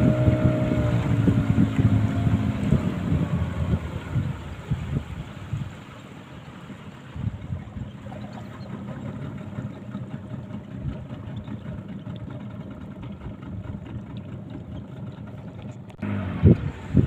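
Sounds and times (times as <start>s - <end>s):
boat engine running: 0.0s - 17.0s
water rushing along hull: 0.0s - 17.0s.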